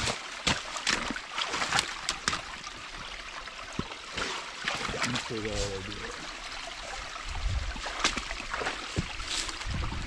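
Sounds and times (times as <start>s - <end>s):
boots splashing in mud: 0.0s - 2.5s, 3.8s - 5.8s, 7.7s - 9.9s
water trickling: 0.0s - 10.0s.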